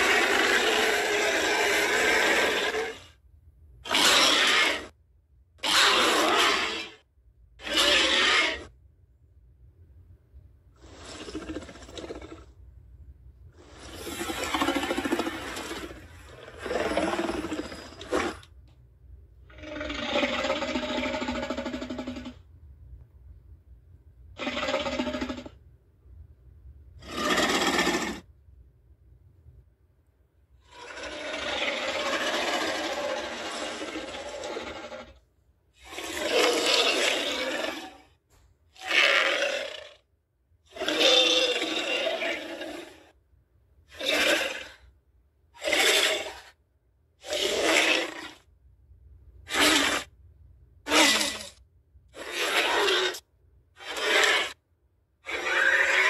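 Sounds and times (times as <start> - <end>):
creature calls: 0.0 - 3.2, 3.8 - 5.0, 5.6 - 7.0, 7.6 - 8.8, 13.6 - 18.5, 19.4 - 22.4, 24.4 - 25.6, 27.0 - 28.3, 30.6 - 35.2, 35.8 - 38.1, 38.8 - 40.0, 40.7 - 43.1, 43.9 - 44.9, 45.6 - 46.6, 47.2 - 48.4, 49.5 - 50.1, 50.8 - 51.6, 52.2 - 53.2, 53.8 - 54.6, 55.2 - 56.0.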